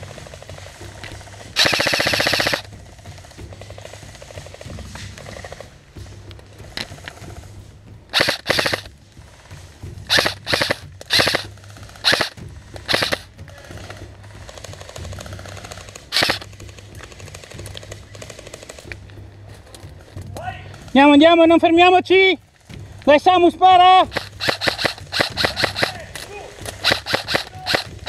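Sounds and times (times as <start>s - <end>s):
airsoft rifle bursts: 1.6s - 2.7s, 8.1s - 8.9s, 10.1s - 13.3s, 16.1s - 16.5s, 24.0s - 28.0s.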